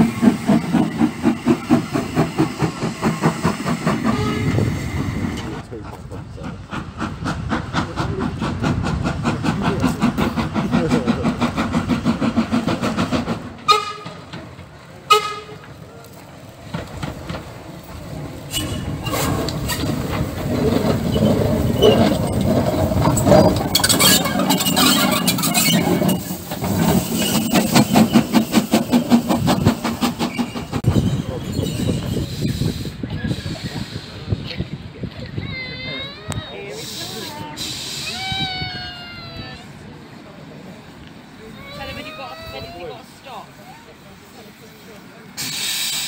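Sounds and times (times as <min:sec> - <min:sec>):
steam hissing: 0:00.0 - 0:13.8, 0:16.1 - 0:46.0
steam locomotive chuffing: 0:00.0 - 0:46.0
steam whistle toots: 0:04.0 - 0:05.0.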